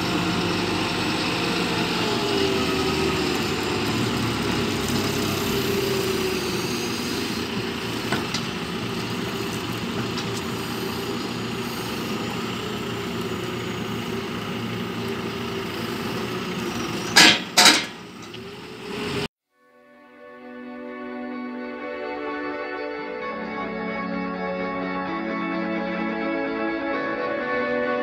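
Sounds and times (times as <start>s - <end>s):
diesel engine running: 0.0s - 19.3s.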